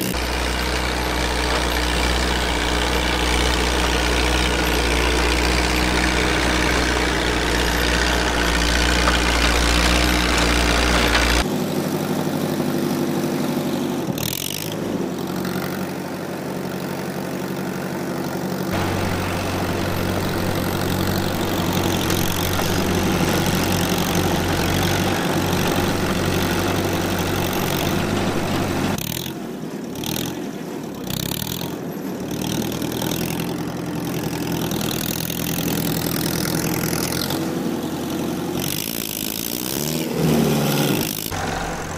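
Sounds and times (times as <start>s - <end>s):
rotary tiller through soil: 0.0s - 11.6s, 18.2s - 41.9s
diesel tractor engine under load: 0.0s - 41.9s.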